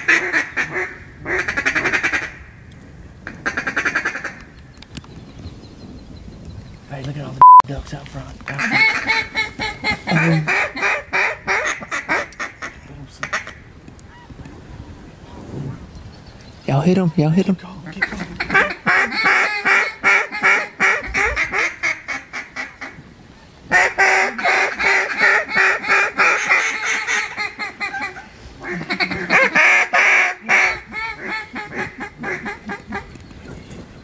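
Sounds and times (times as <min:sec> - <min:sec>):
duck call quacks: 0:00.0 - 0:02.4, 0:08.6 - 0:14.2, 0:18.0 - 0:23.0, 0:23.7 - 0:33.1.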